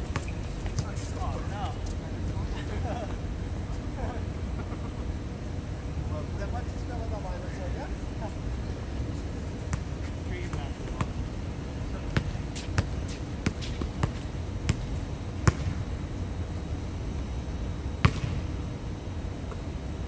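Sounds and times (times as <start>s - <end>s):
steady low rumble: 0.0s - 20.0s
basketball bouncing on court: 12.1s - 15.8s, 18.0s - 18.5s.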